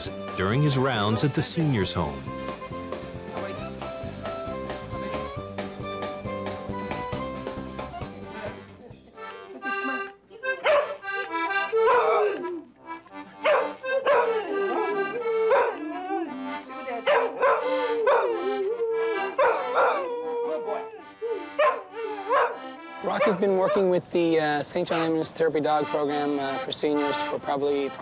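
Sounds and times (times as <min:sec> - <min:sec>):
button accordion: 0:00.0 - 0:19.8, 0:21.0 - 0:24.3, 0:24.9 - 0:28.0
fiddle music: 0:00.0 - 0:28.0
dog howling: 0:11.8 - 0:12.5, 0:13.5 - 0:23.8.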